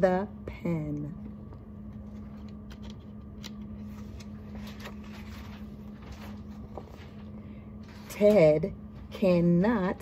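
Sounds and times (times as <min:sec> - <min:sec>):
steady low hum: 0:00.0 - 0:10.0
book pages rustling: 0:02.0 - 0:08.1.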